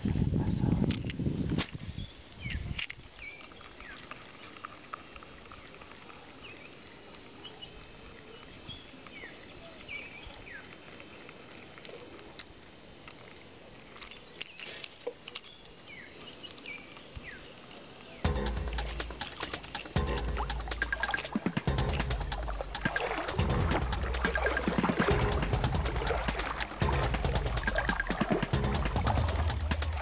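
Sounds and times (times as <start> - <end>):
music: 18.3 - 30.0
sharp clicks: 18.3 - 30.0
steady hiss: 18.3 - 30.0.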